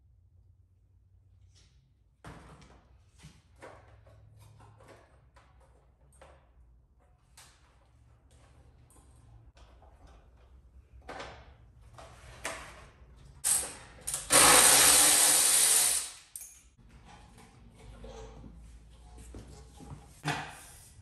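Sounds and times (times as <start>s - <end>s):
shop tool hissing burst: 13.5s - 16.3s
tools and parts clinking: 16.3s - 17.4s.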